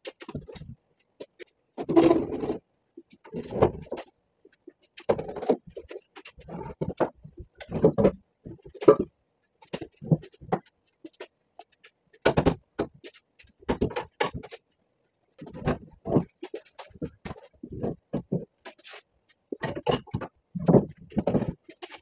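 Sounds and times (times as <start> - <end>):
wooden boards knocking and scraping: 0.0 - 14.6, 15.4 - 22.0.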